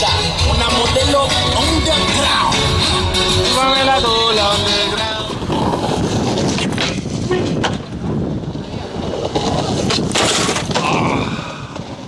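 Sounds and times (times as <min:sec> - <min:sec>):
skateboard wheels rolling on concrete: 0:00.0 - 0:12.0
wind buffeting microphone: 0:00.3 - 0:12.0
skateboard clacks: 0:05.2 - 0:11.0.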